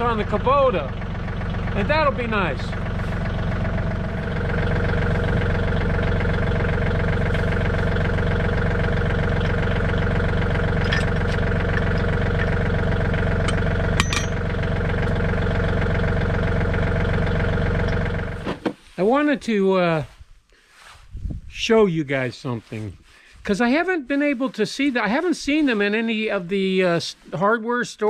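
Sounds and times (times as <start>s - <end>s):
tractor diesel engine idling: 0.0s - 18.6s.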